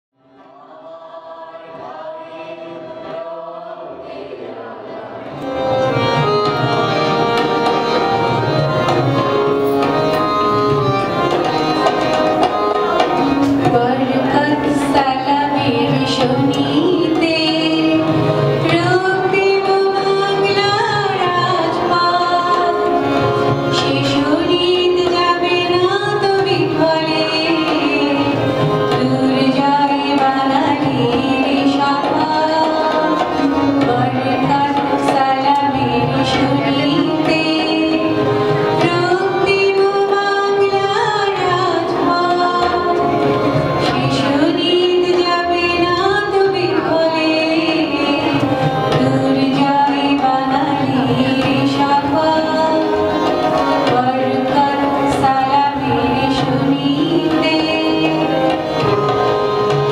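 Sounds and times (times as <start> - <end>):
harmonium: 0.2 - 59.9
tabla: 0.2 - 59.9
woman singing: 13.6 - 23.1, 23.7 - 58.6.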